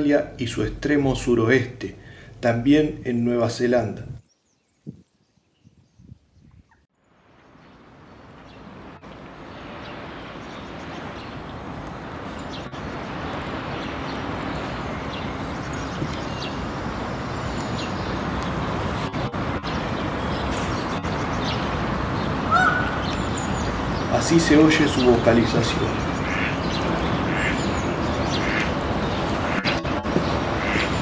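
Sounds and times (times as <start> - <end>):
low rumble of distant traffic: 7.0 - 31.0.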